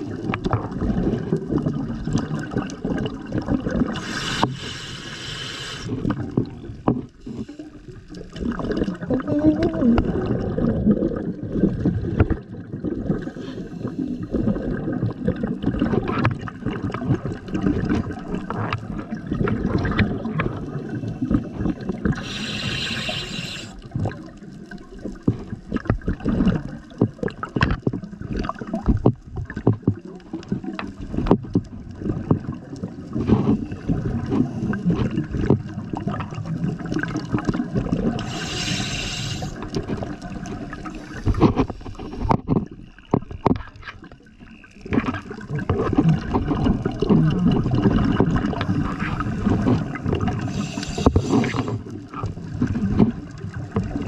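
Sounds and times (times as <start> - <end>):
underwater bubbles gurgling: 0.0 - 54.0
diver inhaling hiss: 3.9 - 6.1, 13.2 - 14.5, 21.1 - 23.8, 38.2 - 39.6, 50.4 - 51.9.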